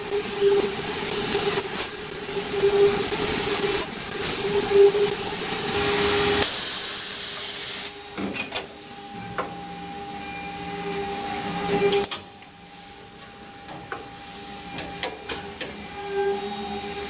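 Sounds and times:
cutter hissing through metal: 0:00.0 - 0:08.8.

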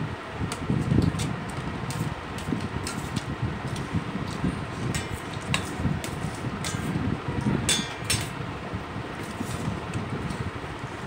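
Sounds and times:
fan-like hum: 0:00.0 - 0:11.0
fork clinking on steel plate: 0:07.7 - 0:08.3.

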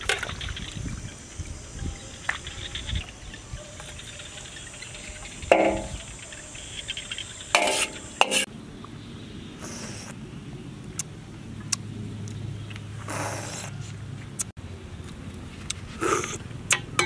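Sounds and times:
metal ladle clanking on pot: 0:05.5 - 0:06.0, 0:07.6 - 0:08.5.

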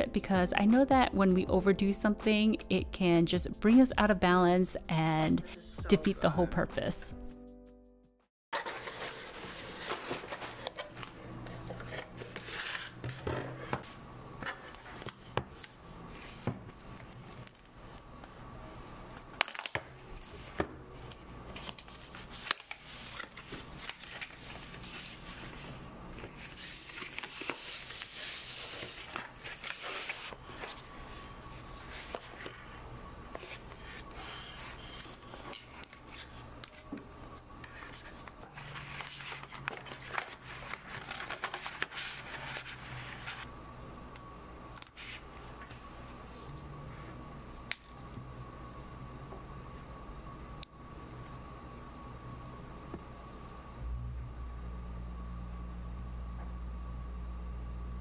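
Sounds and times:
cardboard packaging rustling: 0:08.6 - 0:13.1, 0:37.7 - 0:43.5.

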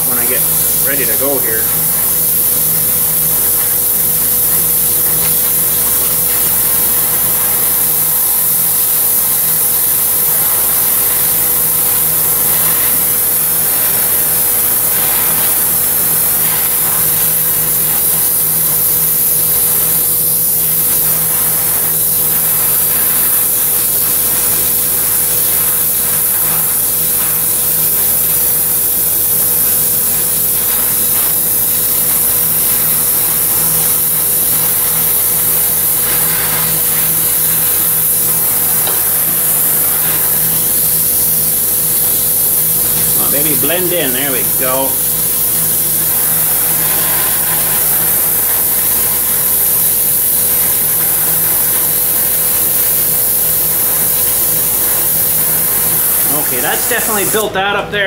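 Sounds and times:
torch flame hissing: 0:00.0 - 0:57.6.

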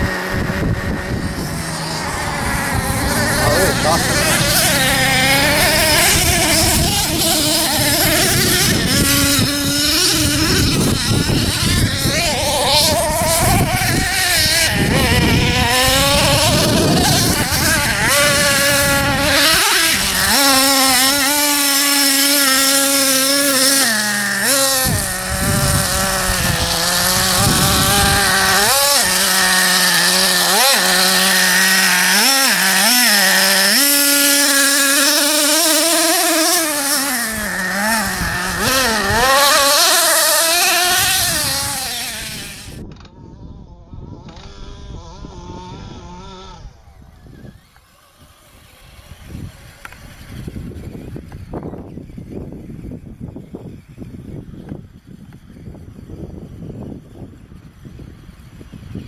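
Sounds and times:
rc truck engine revving: 0:00.0 - 0:59.0.

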